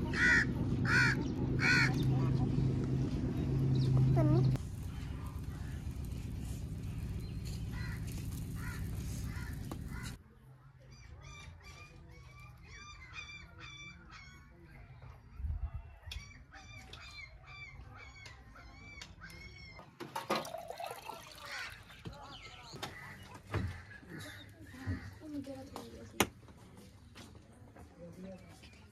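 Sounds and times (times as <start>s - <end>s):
birds calling: 0.0s - 10.2s, 15.8s - 26.1s.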